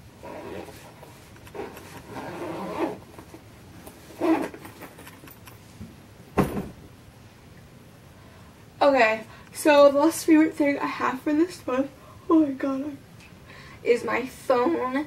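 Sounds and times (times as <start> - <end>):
rasping rustling scrapes: 0.2 - 5.0.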